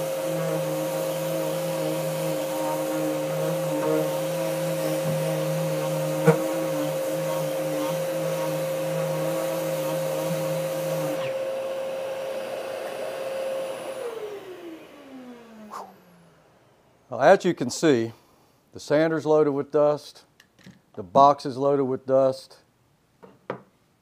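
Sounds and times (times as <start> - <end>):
electric sander sanding wood: 0.0 - 16.3.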